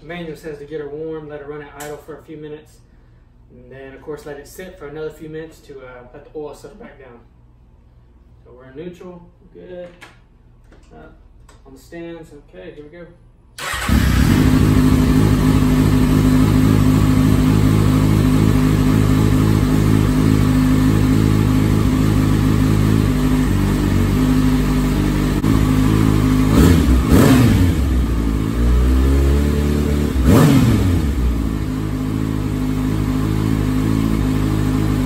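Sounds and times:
engine revving: 0:13.6 - 0:35.0
motorcycle engine idling: 0:13.6 - 0:35.0.

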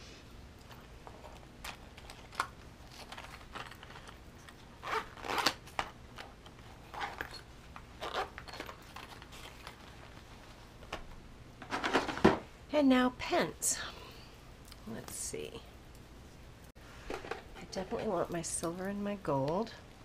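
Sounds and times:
zipper pulls: 0:04.8 - 0:05.8, 0:06.8 - 0:08.6.

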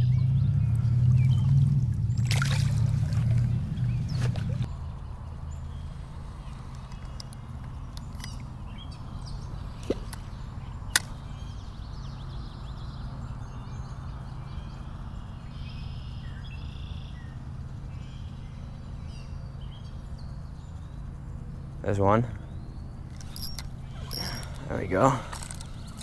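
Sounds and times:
birds chirping: 0:00.0 - 0:26.0
fishing reel clicks: 0:23.1 - 0:26.0.

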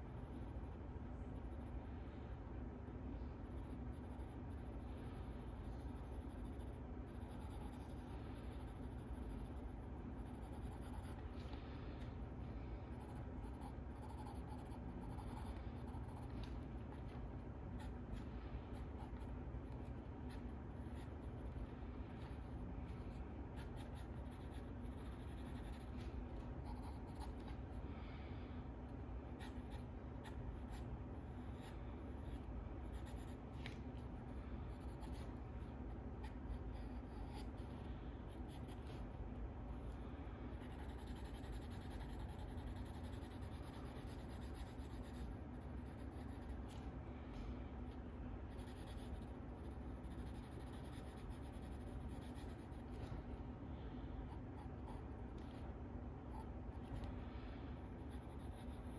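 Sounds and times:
low room hum: 0:00.0 - 0:58.9
pencil scratching on paper: 0:03.2 - 0:12.0, 0:12.6 - 0:27.8, 0:29.3 - 0:33.8, 0:34.7 - 0:39.1, 0:40.6 - 0:46.8, 0:48.5 - 0:53.3, 0:57.9 - 0:58.9.

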